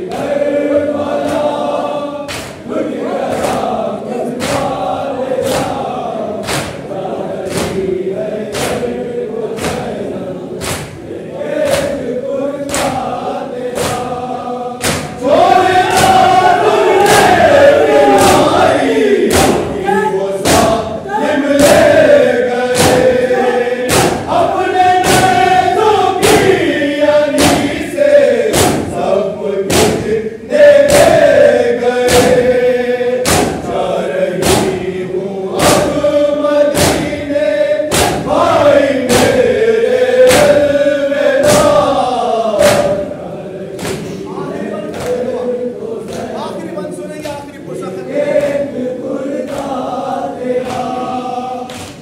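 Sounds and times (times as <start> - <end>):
men chanting in chorus: 0.0 - 52.0
palms slapping chests: 2.3 - 19.8, 20.4 - 29.0, 29.7 - 37.2, 37.9 - 43.1, 43.7 - 44.2.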